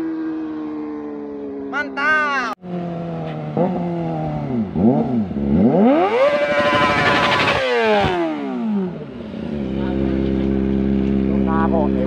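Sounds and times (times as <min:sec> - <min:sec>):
motorcycle engine revving past: 0:02.6 - 0:12.0.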